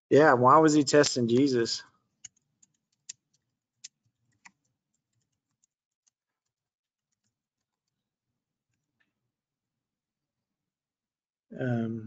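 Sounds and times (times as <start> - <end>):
computer keyboard clicks: 2.2 - 8.0.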